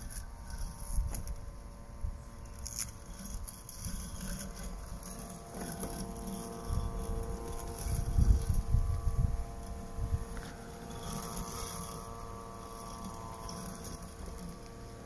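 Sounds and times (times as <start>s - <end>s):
robotic lawn mower whining: 0.0s - 15.0s
wind rumbling on microphone: 6.3s - 13.4s.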